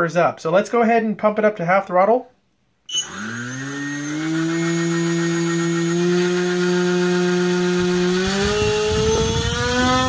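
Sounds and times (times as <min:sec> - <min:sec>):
electric motor whine: 0:02.9 - 0:10.0.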